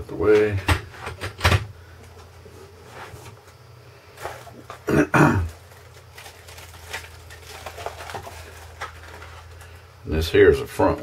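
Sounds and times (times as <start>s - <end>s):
plastic parts crinkling: 4.2s - 9.9s
man clearing his throat: 4.8s - 5.6s.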